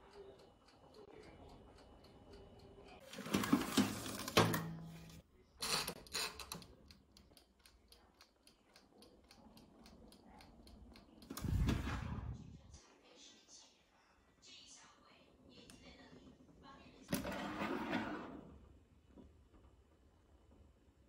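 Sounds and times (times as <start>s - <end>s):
wind-up timer ticking: 0.0s - 3.1s, 6.1s - 11.6s.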